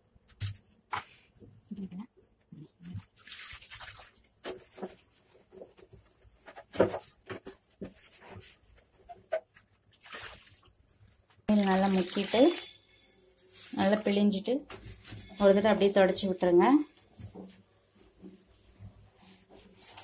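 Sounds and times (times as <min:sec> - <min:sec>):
water splashing and dripping: 0:02.9 - 0:04.5, 0:09.9 - 0:13.1
cloth sloshed in water bowl: 0:02.9 - 0:05.9, 0:07.9 - 0:12.7.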